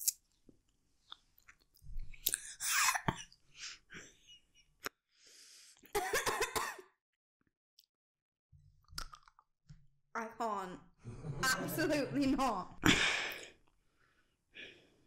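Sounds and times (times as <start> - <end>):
wet chewing and smacking: 1.0 - 2.5, 8.8 - 9.4
mouth clicks: 8.9 - 9.4.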